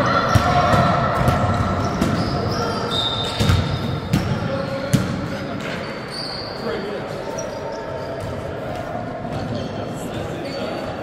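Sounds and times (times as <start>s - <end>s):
basketball bouncing indoors: 0.1s - 5.4s
sneaker squeaks on floor: 1.5s - 8.6s, 9.3s - 11.0s.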